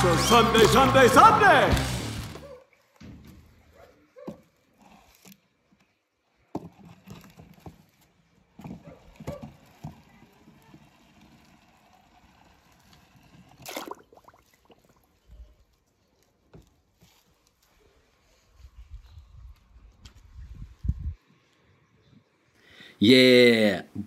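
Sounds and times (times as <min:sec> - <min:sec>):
splash into water: 0:13.6 - 0:14.9.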